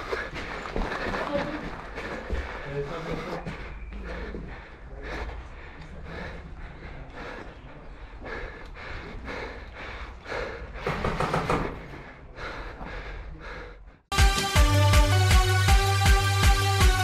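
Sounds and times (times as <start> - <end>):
footsteps crunching on concrete: 0.0 - 4.7.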